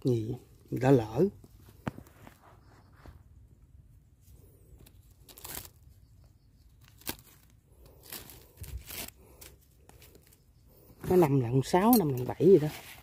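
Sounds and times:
bag crinkling and rustling: 4.8 - 5.9, 6.8 - 10.4.

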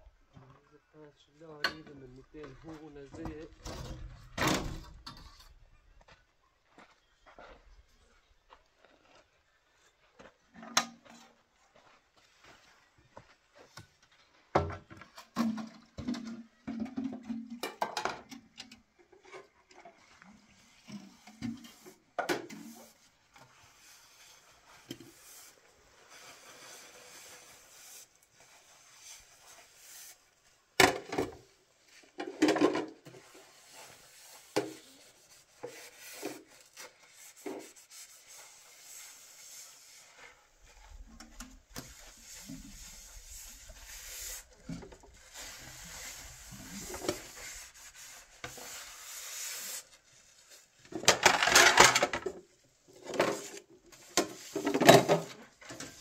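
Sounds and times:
rubbing and scraping: 19.2 - 30.5, 32.0 - 52.4.

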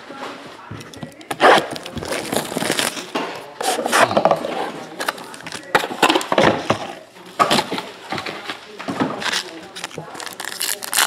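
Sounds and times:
foil packs crinkling: 1.2 - 4.2, 4.8 - 6.3, 9.2 - 11.0.

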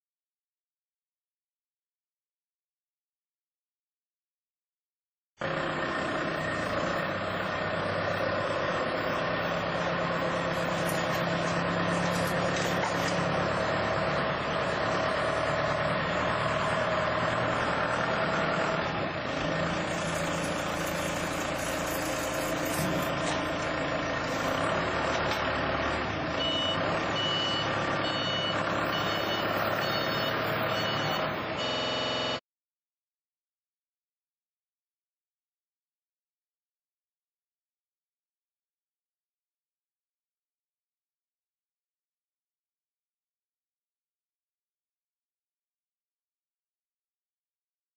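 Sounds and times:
forklift engine drone: 5.4 - 32.4
reversing beeper: 26.4 - 32.4.

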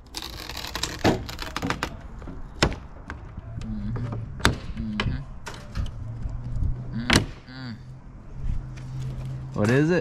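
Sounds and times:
wire scraping through windshield seal: 0.0 - 2.0.

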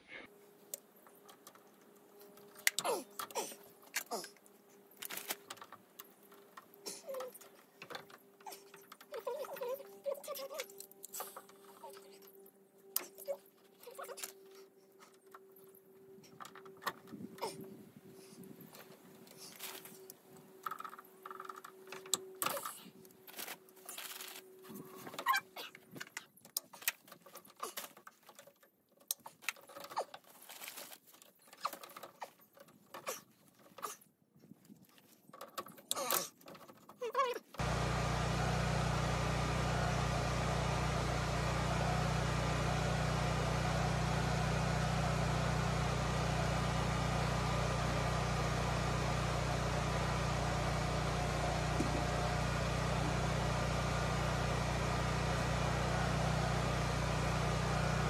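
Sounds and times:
hands handling plastic tubing and tools: 18.8 - 37.6.

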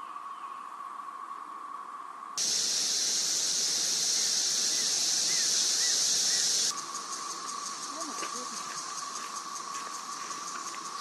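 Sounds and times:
faint clicking cicada song: 0.0 - 11.0
high hissing cicada chorus: 0.8 - 11.0
cicada chorus wailing drone: 2.4 - 11.0.

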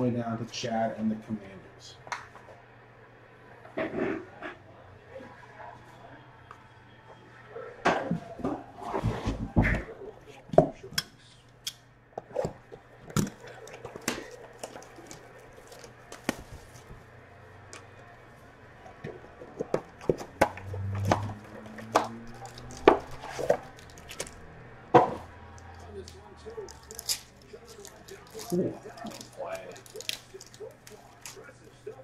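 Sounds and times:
foil packs rustling: 13.3 - 17.1, 21.4 - 24.5, 25.9 - 32.0.

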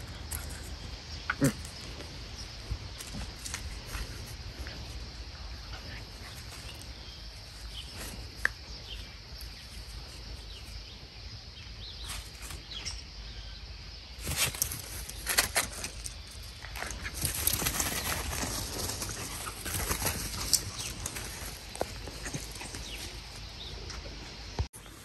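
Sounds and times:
dogs scuffling in grass: 1.8 - 11.0, 14.2 - 25.0.

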